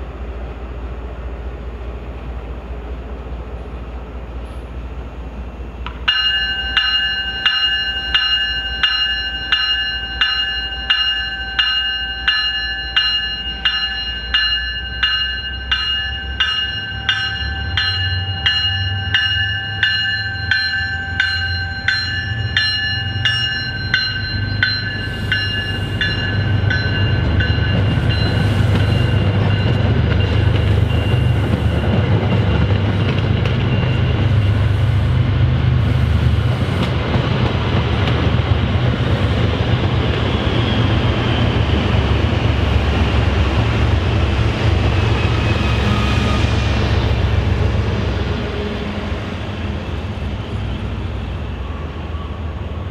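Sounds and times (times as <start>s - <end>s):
train rumbling on track: 0.0s - 52.9s
locomotive bell ringing: 6.0s - 34.8s.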